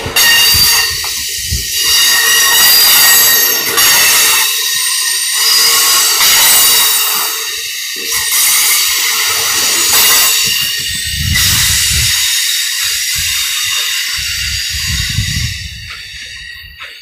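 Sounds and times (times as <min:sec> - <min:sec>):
low train rumbles: 0:00.0 - 0:17.0
train wheels hissing on rail: 0:00.0 - 0:17.0.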